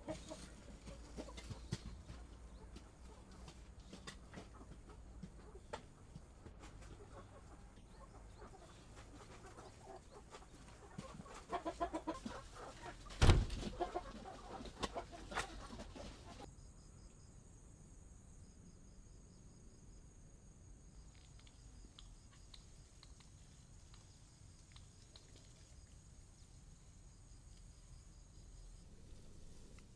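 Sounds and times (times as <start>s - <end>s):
chickens clucking: 0.0s - 16.5s
loud thump: 13.2s - 13.6s.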